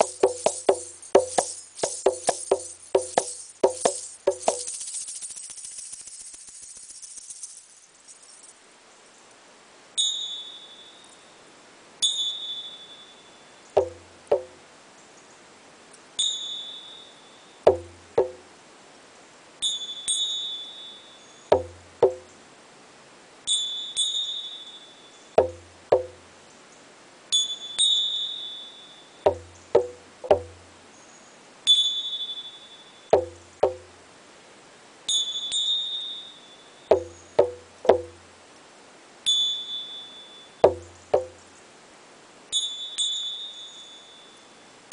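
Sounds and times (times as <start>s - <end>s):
short low knocks: 0.0s - 4.7s, 13.8s - 14.6s, 17.7s - 18.4s, 21.5s - 22.3s, 25.4s - 26.2s, 29.3s - 30.6s, 33.2s - 33.9s, 36.9s - 38.2s, 40.6s - 41.4s.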